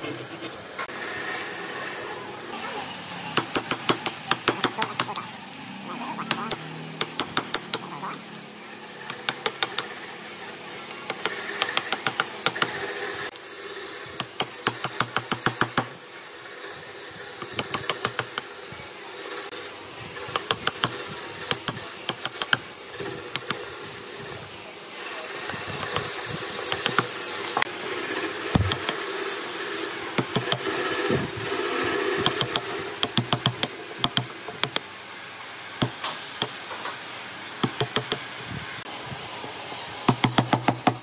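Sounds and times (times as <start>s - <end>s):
woodworking tool rapid taps: 3.4s - 5.2s, 6.2s - 7.9s, 9.0s - 9.9s, 11.0s - 12.8s, 14.2s - 16.0s, 17.4s - 18.5s, 20.3s - 23.6s, 25.8s - 27.7s, 28.5s - 29.0s, 30.2s - 30.7s, 32.2s - 34.9s, 37.6s - 38.3s, 40.1s - 41.0s.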